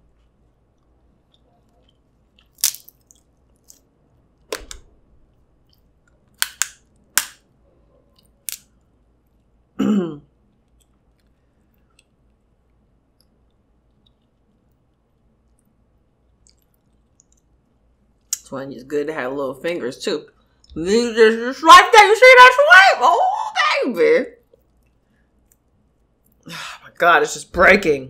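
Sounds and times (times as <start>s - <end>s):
quiet chewing: 0.0s - 3.9s, 10.3s - 18.4s, 24.4s - 26.5s
wet clicks and smacks of eating: 10.5s - 18.5s.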